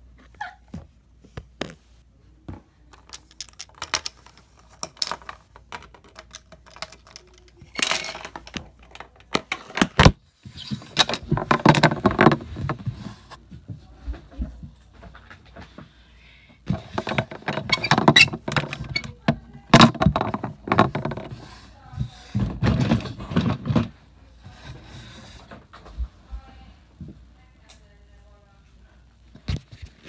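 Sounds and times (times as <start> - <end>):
scraping and rustling: 16.7 - 26.2.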